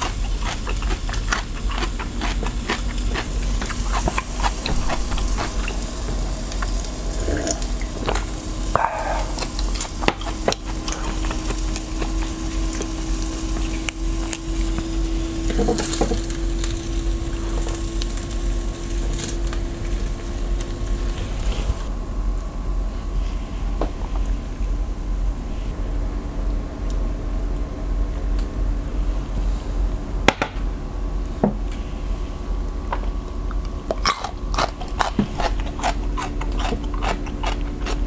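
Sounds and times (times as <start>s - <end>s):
meat sizzling on grill pan: 2.9s - 21.9s.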